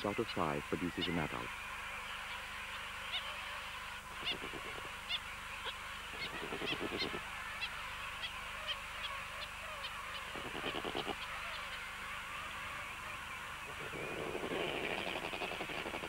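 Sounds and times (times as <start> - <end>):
long low penguin calls: 4.1 - 16.0
short high penguin calls: 6.2 - 9.2, 9.8 - 11.8, 13.7 - 16.0.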